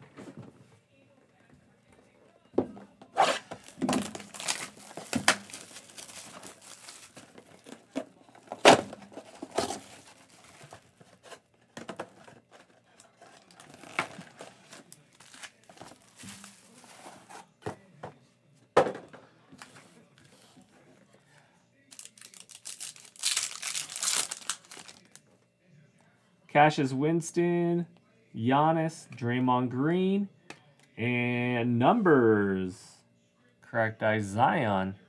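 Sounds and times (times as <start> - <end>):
cardboard ripping: 3.2 - 7.2, 22.1 - 25.0
plastic wrap crinkling: 3.5 - 8.6, 13.2 - 16.9, 21.9 - 25.2.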